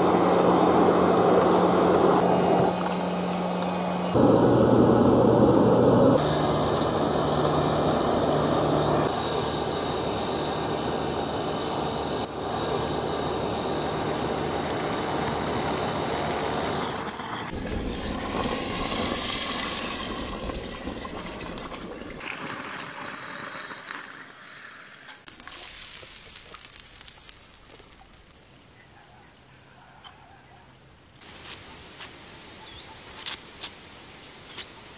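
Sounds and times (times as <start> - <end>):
wood fire burning: 0.0 - 34.9
hot steel quenching and bubbling: 5.7 - 29.4.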